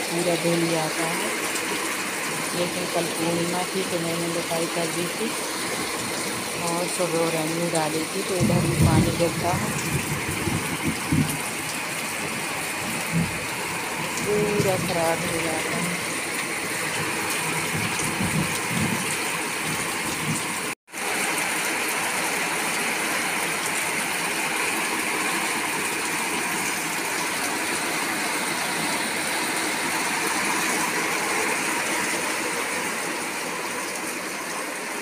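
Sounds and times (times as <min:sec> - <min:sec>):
heavy rain falling: 0:00.0 - 0:35.0
water pouring off roof: 0:00.0 - 0:35.0.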